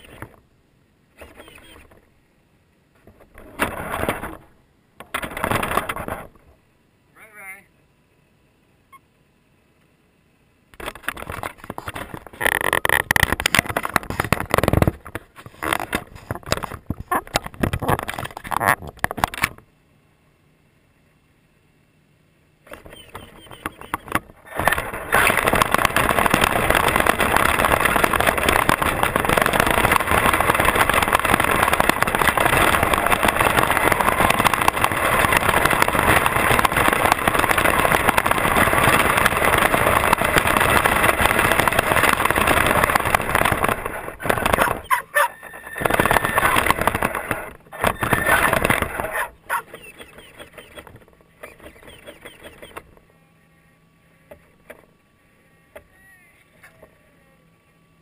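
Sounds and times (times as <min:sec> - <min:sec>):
toy truck motor and rattling chassis: 0:01.2 - 0:01.9, 0:22.7 - 0:53.0.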